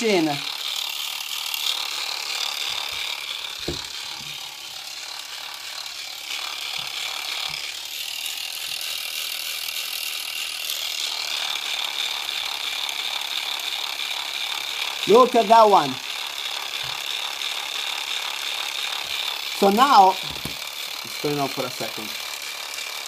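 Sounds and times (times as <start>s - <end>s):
small motors whirring: 0.0s - 23.0s.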